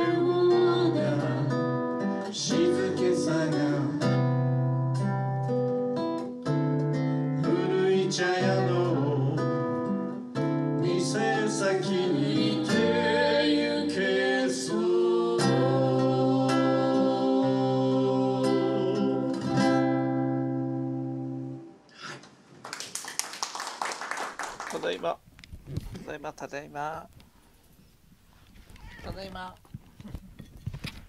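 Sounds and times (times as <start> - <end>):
person singing slow song: 0.0 - 4.8, 7.3 - 9.9, 10.6 - 19.6
acoustic guitar strumming: 0.0 - 21.8.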